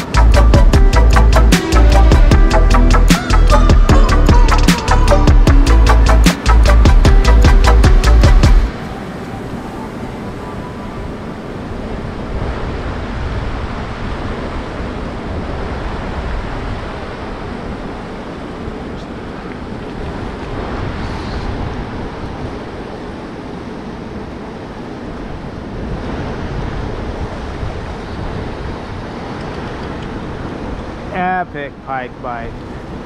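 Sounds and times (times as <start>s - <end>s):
river water rushing: 0.0s - 33.0s
wind buffeting microphone: 6.7s - 31.8s.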